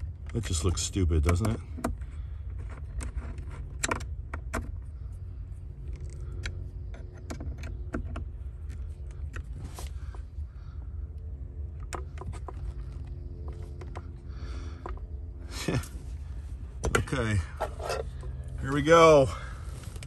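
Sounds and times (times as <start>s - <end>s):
steady low hum: 0.0s - 20.0s
screwdriver clicking and scraping: 1.2s - 4.8s, 17.6s - 18.3s.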